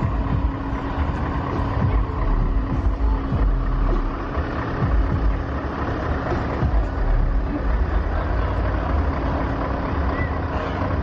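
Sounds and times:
diesel truck engines running: 0.0 - 11.0.

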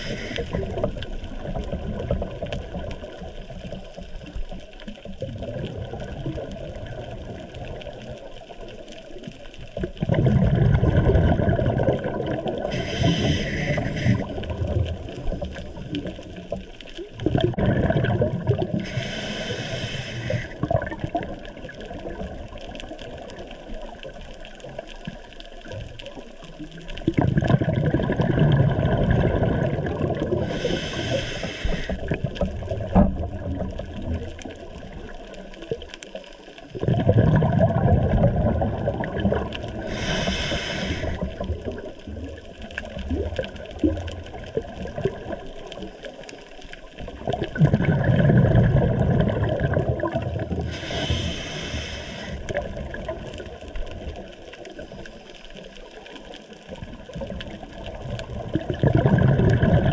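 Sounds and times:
regulator hiss on inhale: 0.0 - 0.9, 12.6 - 14.6, 18.8 - 20.7, 30.3 - 32.2, 39.7 - 41.8, 50.6 - 52.7
exhaled bubbles burbling: 0.0 - 59.9
watery rush: 0.0 - 59.9.

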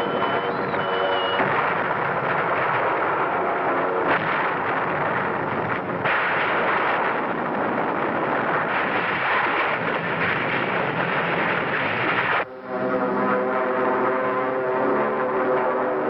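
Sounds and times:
explosions: 0.0 - 12.5
gunfire: 0.4 - 12.4.

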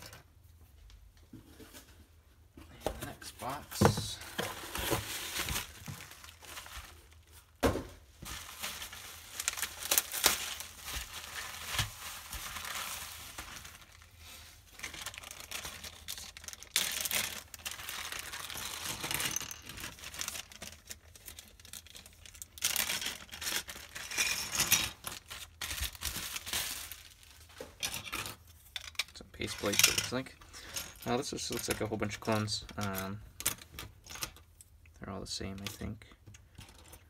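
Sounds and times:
plastic bags crinkling: 3.4 - 7.6, 8.2 - 34.5
plastic parts clattering on table: 18.6 - 20.0, 27.8 - 34.4.

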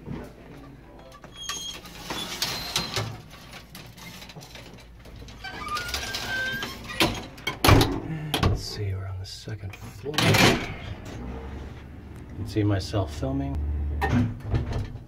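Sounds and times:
old elevator squeaking and rattling: 1.1 - 7.8.

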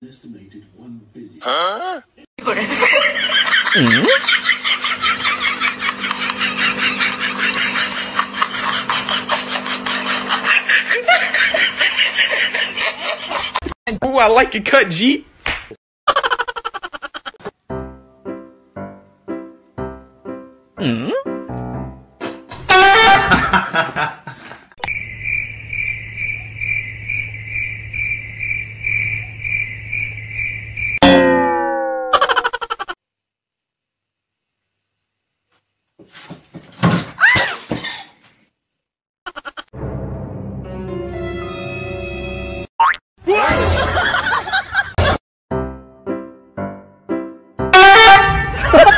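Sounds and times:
rapid snickering laughter: 2.4 - 13.7, 16.1 - 17.4, 39.3 - 39.7
cricket chirping: 24.8 - 31.0.

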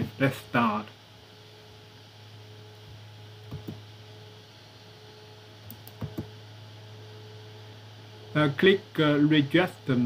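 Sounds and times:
low electrical hum: 0.0 - 10.0
computer mouse clicking: 3.5 - 3.8, 5.6 - 6.3.

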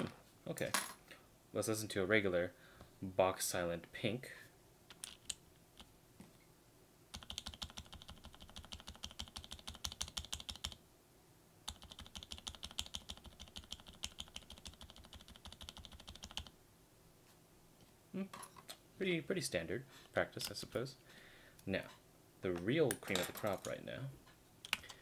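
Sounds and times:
typing on mechanical keyboard: 7.2 - 10.8, 11.7 - 16.5.

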